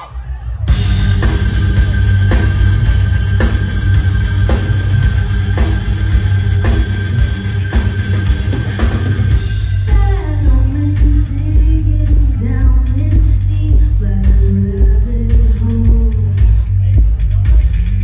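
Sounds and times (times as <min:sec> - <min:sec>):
rock band playing loud: 0:00.0 - 0:18.0
heavy drum hits: 0:00.7 - 0:10.7.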